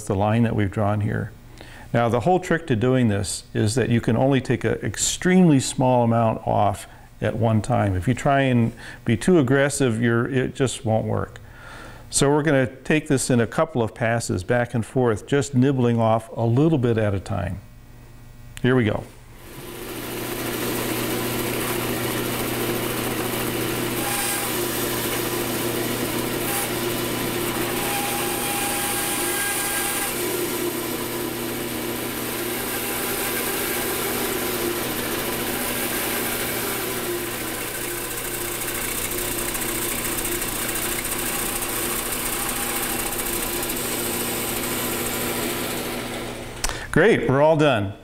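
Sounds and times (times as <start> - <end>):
bandsaw motor running: 19.4 - 46.7
bandsaw blade cutting wood: 19.5 - 46.8.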